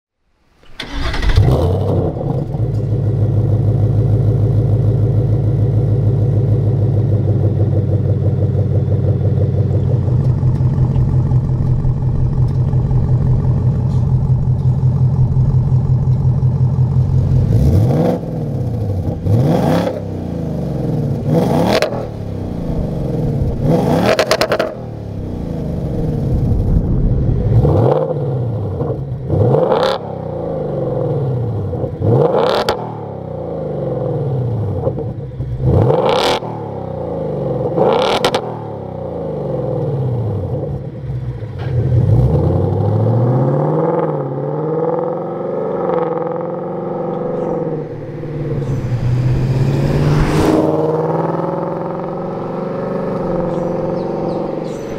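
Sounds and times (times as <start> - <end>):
car engine starting: 0.4 - 54.9
engine revs blipped: 0.8 - 54.9
engine idling with deep burble: 2.4 - 17.6.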